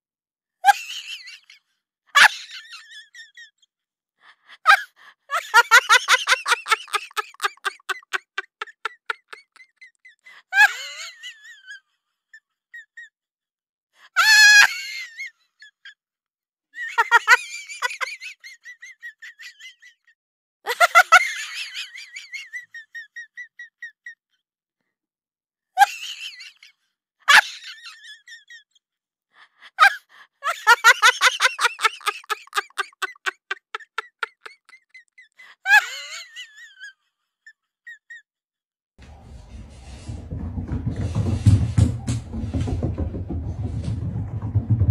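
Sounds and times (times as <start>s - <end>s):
high voice giggling: 4.8s - 10.8s, 30.6s - 35.9s.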